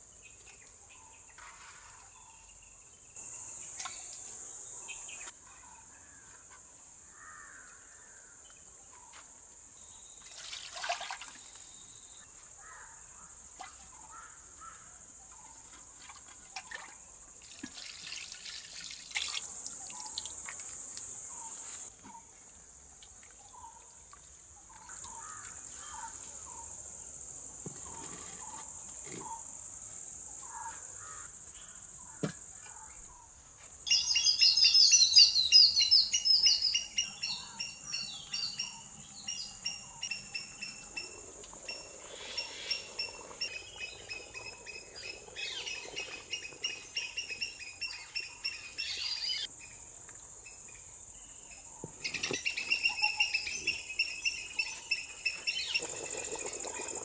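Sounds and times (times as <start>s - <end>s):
liquid splashing and dripping: 16.6s - 20.8s.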